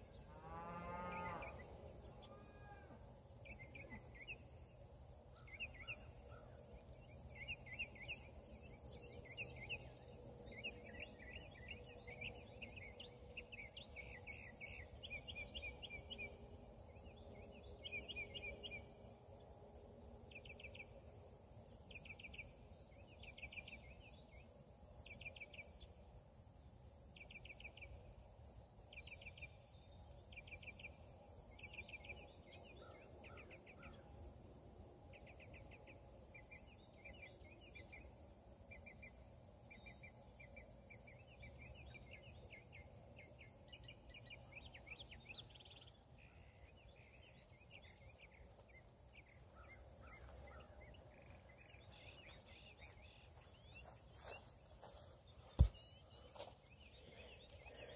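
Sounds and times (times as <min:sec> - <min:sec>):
small birds chirping: 0:35.1 - 0:57.9.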